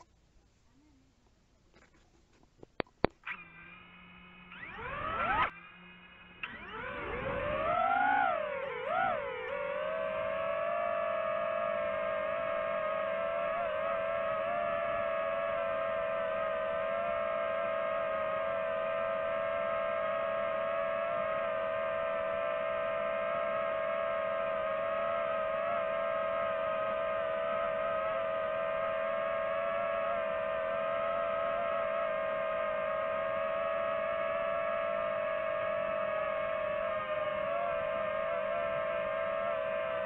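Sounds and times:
drone propellers whining: 3.2s - 40.0s.

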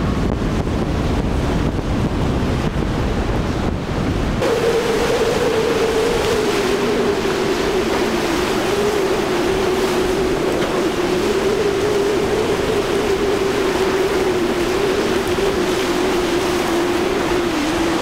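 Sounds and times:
boat engines droning: 0.0s - 18.0s
hull spray through choppy water: 0.0s - 18.0s
wind rushing: 0.0s - 18.0s.

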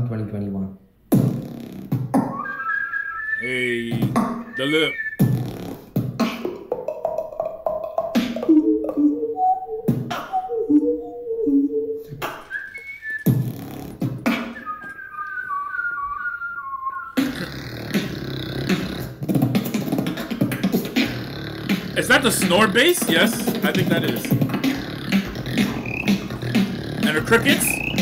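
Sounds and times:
high whistled melody: 2.3s - 5.4s, 9.2s - 13.7s, 14.3s - 17.2s, 22.1s - 28.0s
beatboxing hummed bass melody: 3.4s - 12.5s, 13.2s - 14.6s, 17.2s - 28.0s
rough snore bass: 5.2s - 6.0s, 17.2s - 23.6s, 24.3s - 28.0s
mouth clicks and snares: 12.2s - 16.2s, 17.0s - 28.0s.

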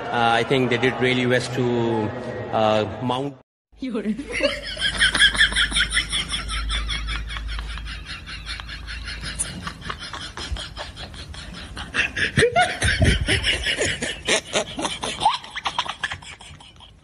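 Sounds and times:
person snickering: 7.3s - 17.0s.

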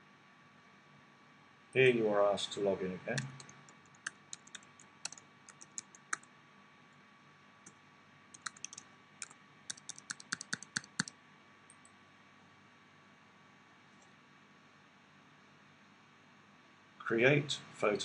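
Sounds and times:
computer keyboard typing: 3.1s - 6.3s, 8.3s - 11.1s.

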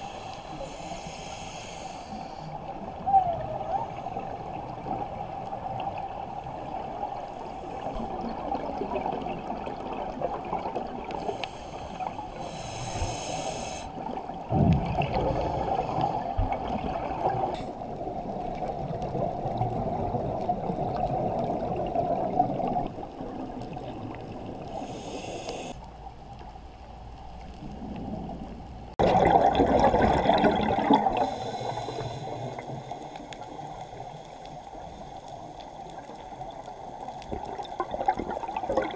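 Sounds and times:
diver inhaling through regulator: 0.0s - 2.6s, 11.2s - 14.0s, 24.7s - 25.8s, 31.0s - 35.9s
muffled underwater wash: 0.0s - 38.9s
bubbling exhalation underwater: 29.0s - 31.5s, 37.4s - 38.9s.

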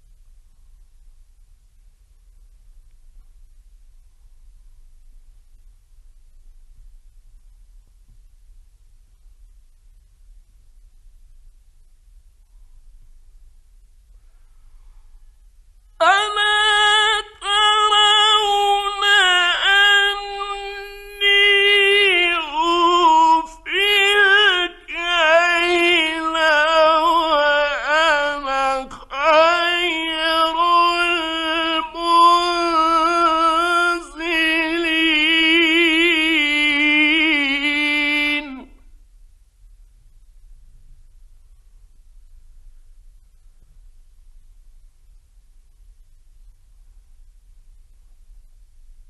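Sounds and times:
man chanting in high voice: 16.0s - 38.9s.

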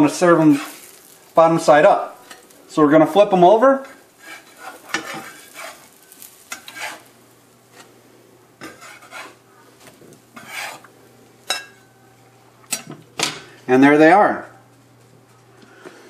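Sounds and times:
faint sizzling: 0.0s - 16.0s
metal spatula scraping a pan: 0.3s - 1.2s, 3.9s - 7.9s, 8.6s - 10.9s.

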